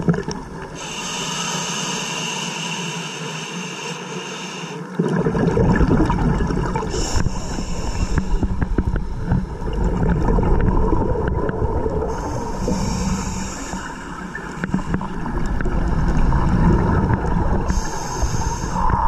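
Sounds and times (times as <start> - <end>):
muffled underwater rushing rumble: 5.2 - 19.0.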